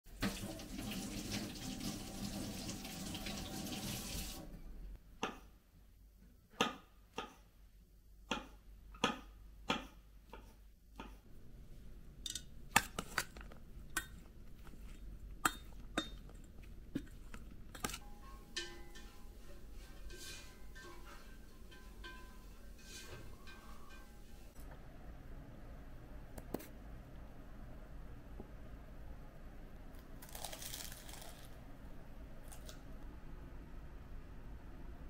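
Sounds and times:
water running: 0.1s - 4.5s
dishes clinking: 12.2s - 12.5s, 15.4s - 16.4s, 17.8s - 24.5s.

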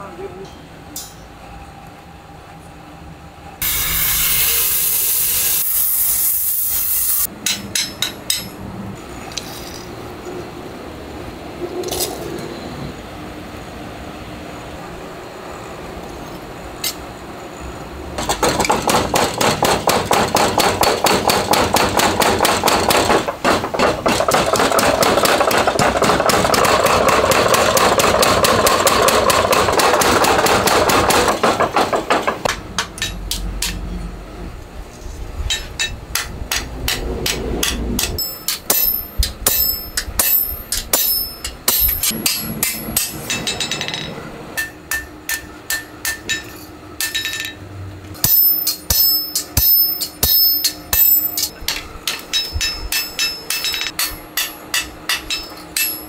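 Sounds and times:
power hammer pounding steel: 7.3s - 8.6s, 18.2s - 34.0s, 35.5s - 47.5s, 48.2s - 56.0s
hammer ringing on anvil: 37.6s - 47.5s, 48.2s - 56.0s.

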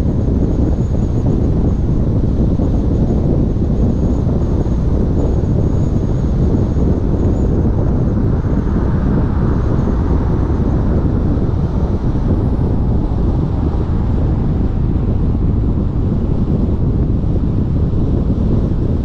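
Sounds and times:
wind buffeting microphone: 0.0s - 19.0s
tyre and road noise: 0.3s - 19.0s.

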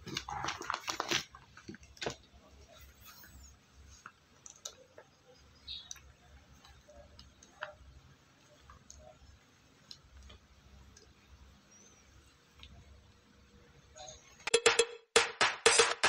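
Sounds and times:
plastic sack crinkling: 0.0s - 2.3s.

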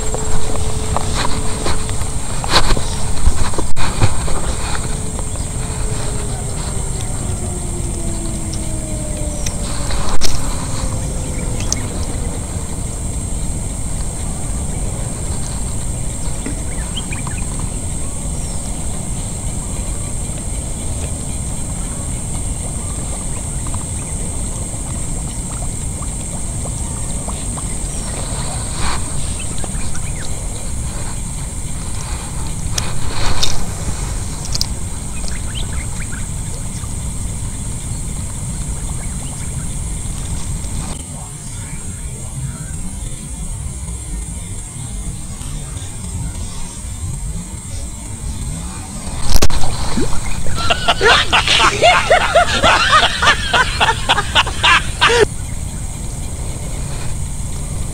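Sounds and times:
faint ticks: 0.0s - 36.9s
high-pitched insect drone: 0.0s - 57.9s
wind rumbling on microphone: 0.0s - 57.9s.

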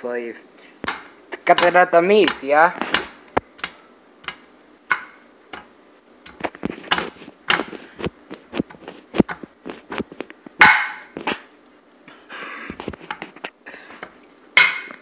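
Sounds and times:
spatula knocking on frying pan: 0.8s - 5.7s, 10.6s - 11.1s.

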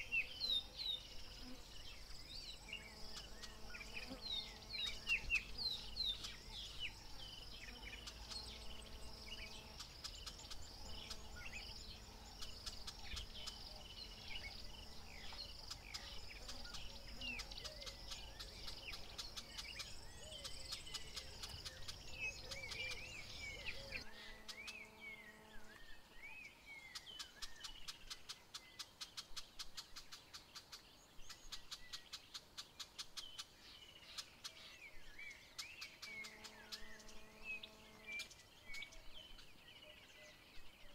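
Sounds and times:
birds chirping and calling: 0.0s - 26.2s.

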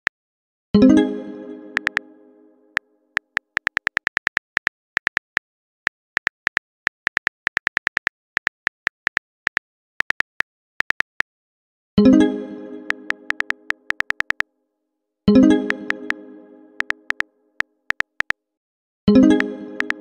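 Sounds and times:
keyboard taps clicking: 1.8s - 2.0s, 3.2s - 5.4s, 6.2s - 11.2s, 13.3s - 14.4s, 16.8s - 17.2s, 17.9s - 18.4s, 19.4s - 20.0s.

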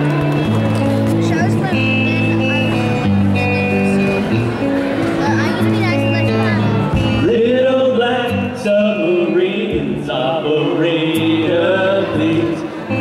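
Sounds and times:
bass guitar: 0.0s - 13.0s
electric guitar: 0.0s - 13.0s
drum kit: 6.8s - 7.4s
man singing: 7.1s - 13.0s.

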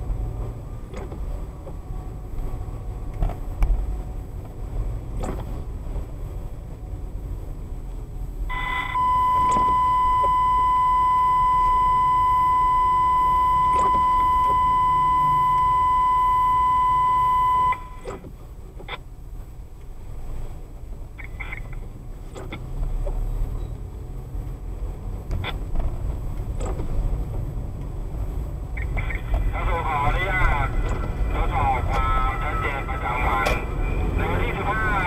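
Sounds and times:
car cabin road rumble: 0.0s - 35.0s
high electronic beep tone: 8.5s - 18.0s.

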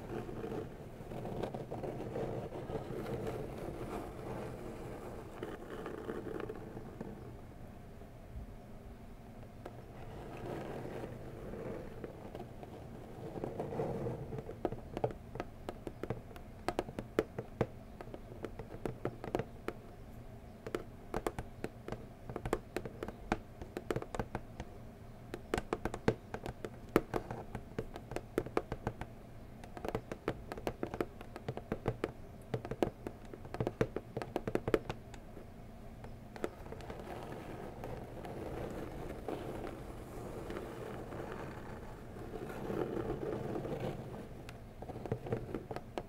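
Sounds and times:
fingernails tapping on cardboard box: 9.6s - 19.9s, 20.5s - 46.0s.

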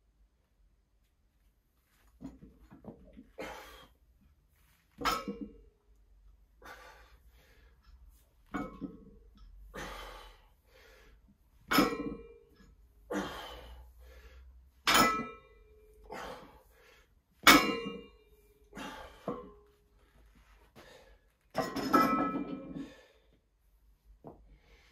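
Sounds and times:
heavy breathing: 6.6s - 8.0s, 9.6s - 11.3s, 13.0s - 14.7s, 16.0s - 17.2s, 18.6s - 21.3s.

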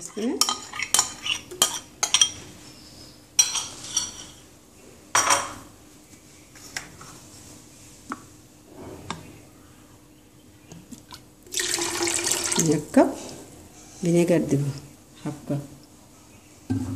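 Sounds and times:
utensil scraping a saucepan: 0.0s - 2.4s
liquid pouring into a pan: 11.5s - 12.7s.

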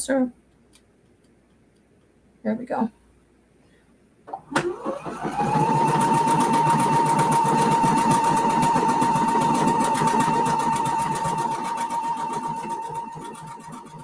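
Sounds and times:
sewing machine running: 4.4s - 14.0s.

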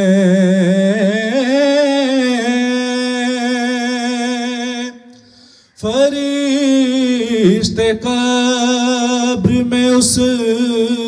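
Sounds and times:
person singing unaccompanied: 5.8s - 11.0s.

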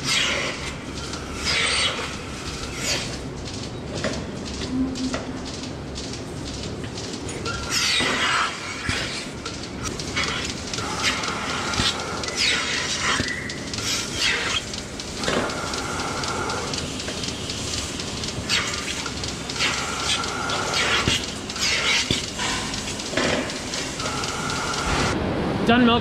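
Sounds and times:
clicks and clanks of milking units: 0.0s - 25.2s
milking units hissing: 0.0s - 25.2s.

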